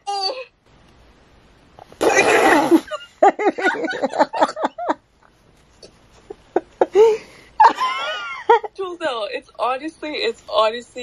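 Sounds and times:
woman laughing: 2.5s - 5.0s, 6.3s - 8.8s.

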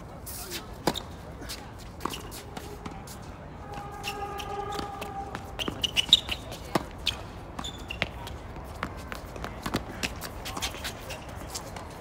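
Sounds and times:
tennis balls bouncing on court: 0.7s - 12.0s
tennis balls struck by rackets: 4.4s - 12.0s.

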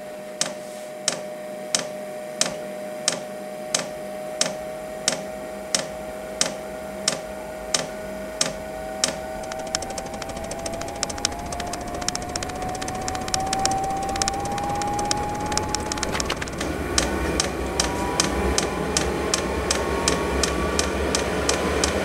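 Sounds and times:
heater fan whine: 9.1s - 22.0s.

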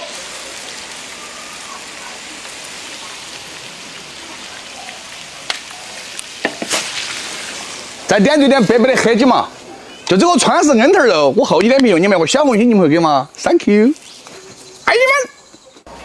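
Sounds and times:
sauce sizzling in a wok: 0.0s - 10.0s.

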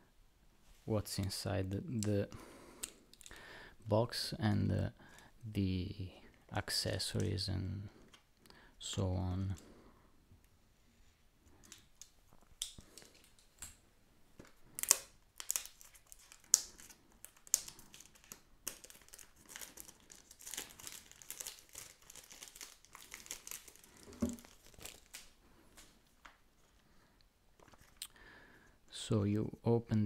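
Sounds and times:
plastic shrink wrap crinkling: 11.6s - 13.8s, 14.4s - 26.8s.

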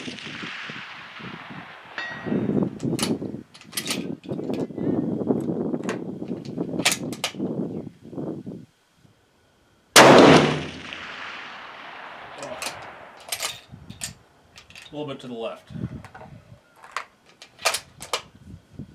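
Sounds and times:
loud rifle shot: 0.0s - 3.2s, 10.0s - 13.3s
sharp handling clicks: 12.4s - 15.0s, 16.8s - 18.3s.

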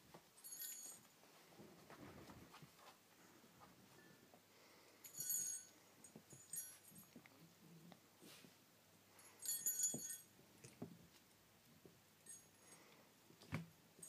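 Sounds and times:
small bell jingling: 0.4s - 1.1s, 5.0s - 7.2s, 9.2s - 10.4s, 12.2s - 12.9s.

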